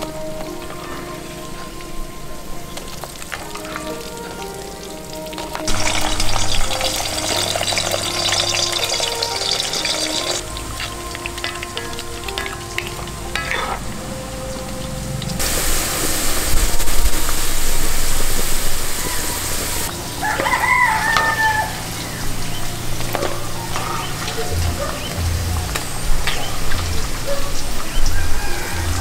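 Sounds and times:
food deep-frying in oil: 2.2s - 29.0s
wooden spoon stirring: 5.4s - 14.7s
rooster crowing: 18.8s - 25.1s, 27.3s - 29.0s.

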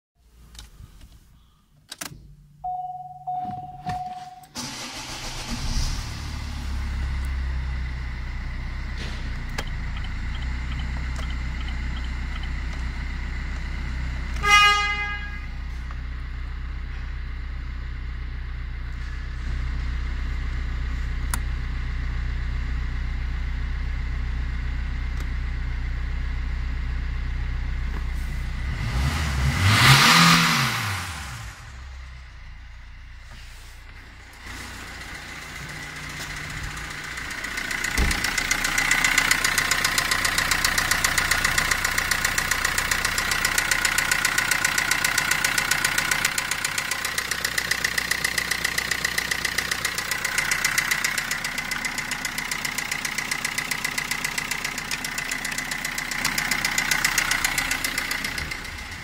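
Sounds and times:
diesel engine starting and idling: 2.4s - 59.0s
warning beep: 2.6s - 4.6s, 9.6s - 12.6s
car horn toot: 2.7s - 4.9s, 14.4s - 15.7s
engine revving: 28.2s - 32.0s.

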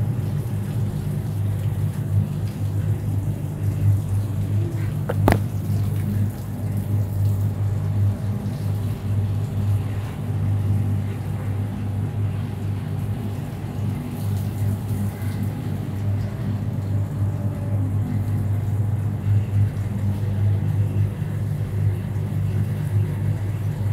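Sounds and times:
low mechanical hum: 0.0s - 23.9s.

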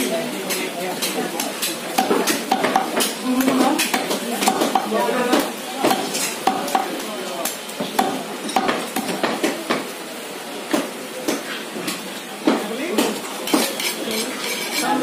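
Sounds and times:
cleaver chopping meat and bone: 0.5s - 9.8s.

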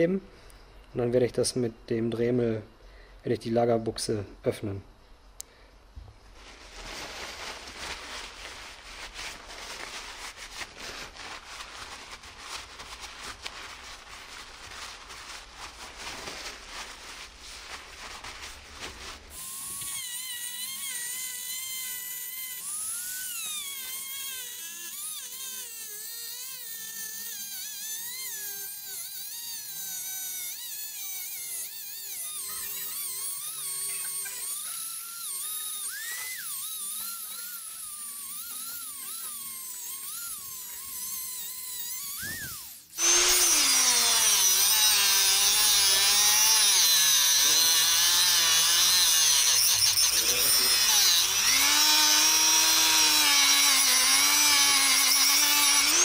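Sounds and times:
crackling scratchy noise: 6.3s - 19.3s
rotary tool cutting metal: 19.3s - 56.0s.

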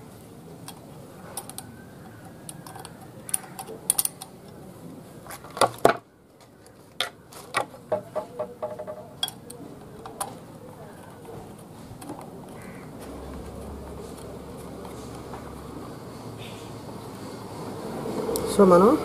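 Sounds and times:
clicks and knocks of handling fan: 5.3s - 15.7s.

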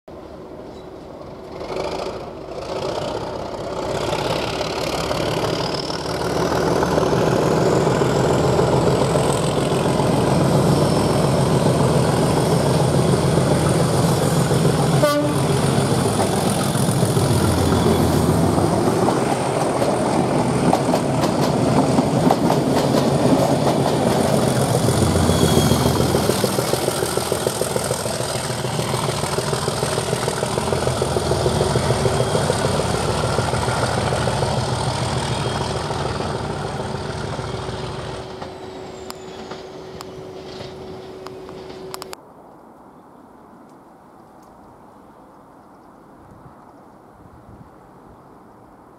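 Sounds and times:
diesel locomotive engines growling: 0.1s - 42.2s
train horn toot: 14.9s - 15.7s, 25.0s - 26.2s
high whine: 24.0s - 42.2s.

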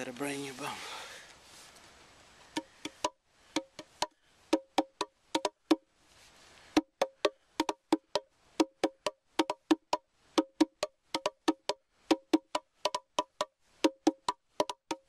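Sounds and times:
box drum finger taps: 2.5s - 5.8s, 6.8s - 15.0s.

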